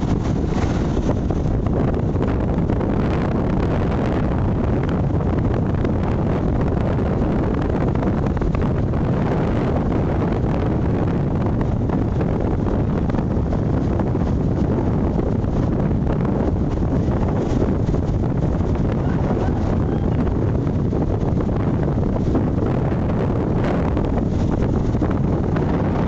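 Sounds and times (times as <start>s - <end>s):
sea waves breaking on shore: 0.0s - 1.8s, 19.0s - 20.6s
wind buffeting microphone: 0.0s - 26.0s.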